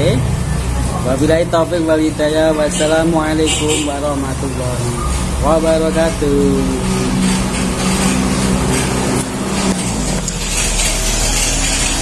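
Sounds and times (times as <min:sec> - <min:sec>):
vehicle engine humming: 0:00.0 - 0:12.0.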